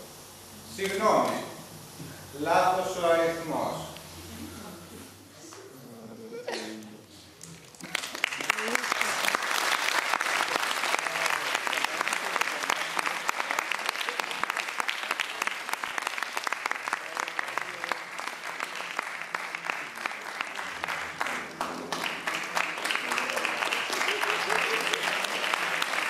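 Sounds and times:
audience applauding: 7.5s - 26.0s.

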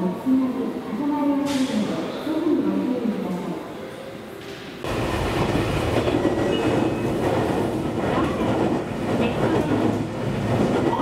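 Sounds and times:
train running: 4.4s - 11.0s.

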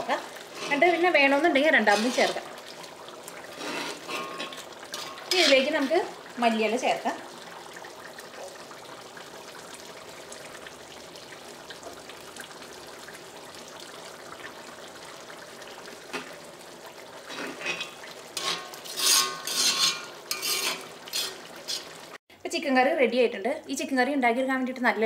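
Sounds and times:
spatula scraping a pan: 0.4s - 1.2s, 1.8s - 2.4s, 3.3s - 6.1s, 17.2s - 22.1s.

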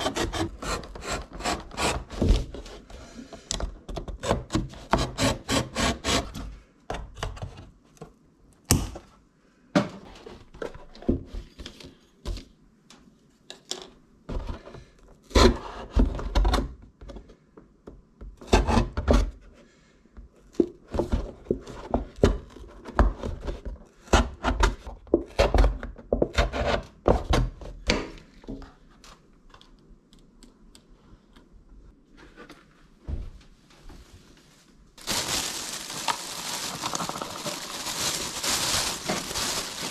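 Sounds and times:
cutting cardboard carton: 0.0s - 2.9s, 4.1s - 6.4s.

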